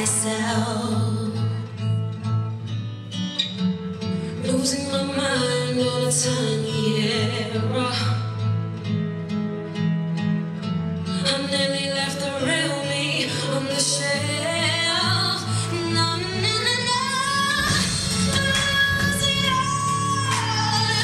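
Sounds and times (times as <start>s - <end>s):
person singing: 0.0s - 1.8s, 11.2s - 21.0s
slow song with guitar: 0.0s - 21.0s.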